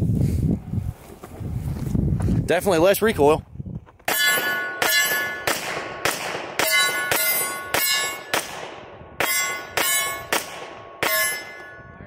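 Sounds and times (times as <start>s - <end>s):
steel target ringing: 4.1s - 8.5s, 9.2s - 12.0s
suppressed pistol shots: 4.1s - 10.8s.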